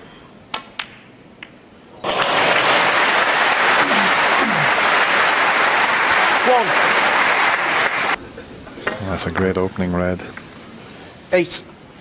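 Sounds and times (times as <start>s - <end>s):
crowd applauding: 2.0s - 8.2s.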